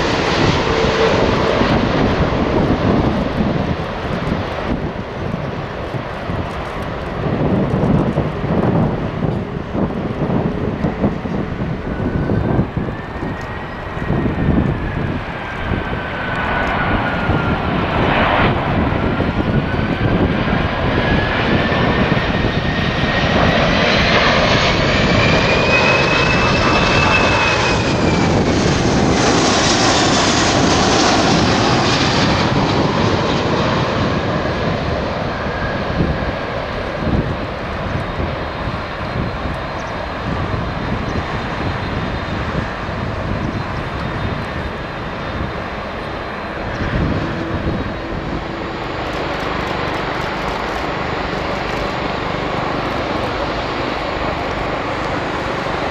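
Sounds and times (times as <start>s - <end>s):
dense jet rumble: 0.0s - 55.9s
jet engine whine: 0.0s - 55.9s.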